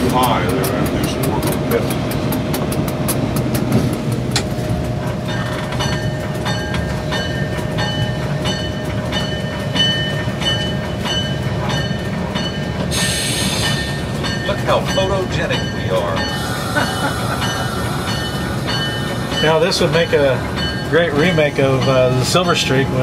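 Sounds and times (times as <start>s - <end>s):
diesel locomotive rumbling: 0.0s - 23.0s
bell ringing: 5.3s - 23.0s.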